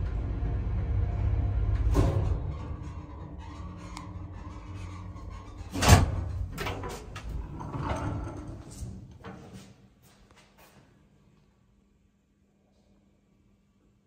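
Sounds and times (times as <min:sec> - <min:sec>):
lift travel rumble: 0:00.0 - 0:09.2.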